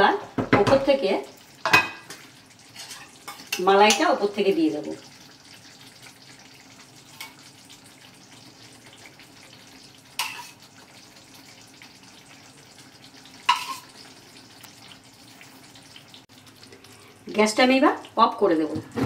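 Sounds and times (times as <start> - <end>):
gravy simmering in a pan: 0.9 - 18.7
spoon clinking against cookware: 10.2 - 10.6, 13.5 - 13.9.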